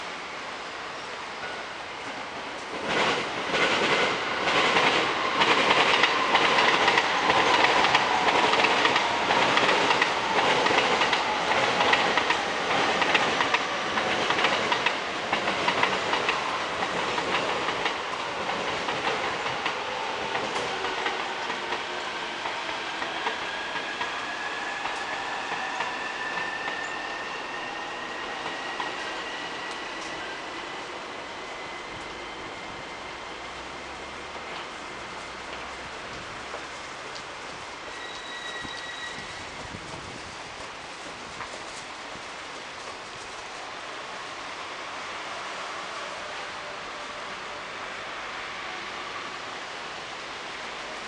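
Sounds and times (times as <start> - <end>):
train wheels clacking: 2.6 - 30.4.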